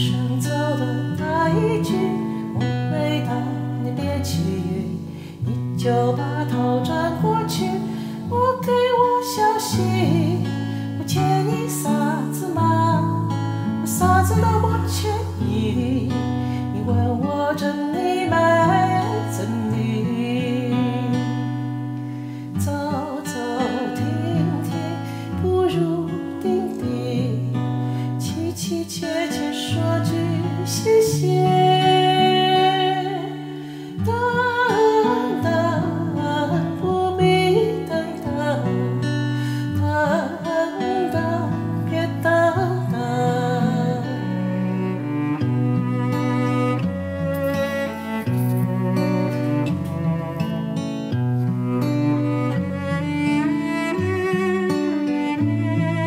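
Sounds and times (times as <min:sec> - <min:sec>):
person singing a ballad: 0:00.0 - 0:50.9
acoustic guitar: 0:00.0 - 0:56.0.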